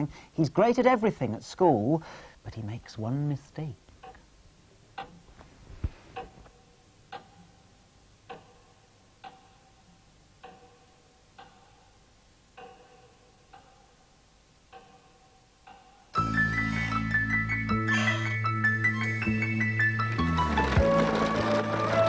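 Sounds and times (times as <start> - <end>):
clock ticking with ringing note: 6.2 - 16.2.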